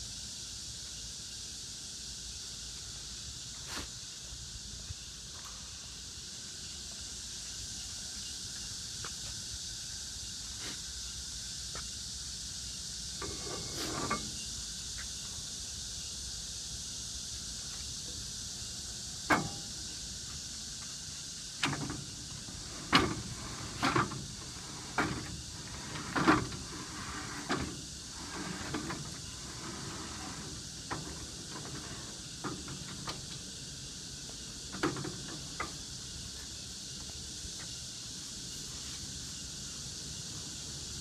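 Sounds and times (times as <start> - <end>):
steady high hiss: 0.0 - 41.0.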